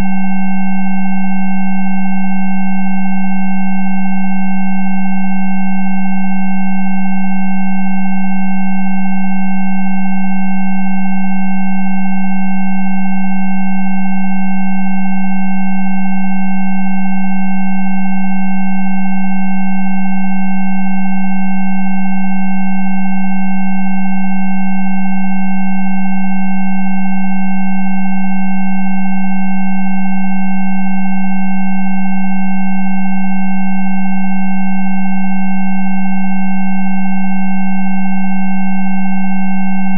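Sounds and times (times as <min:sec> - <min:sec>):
low electronic hum: 0:00.0 - 0:01.4.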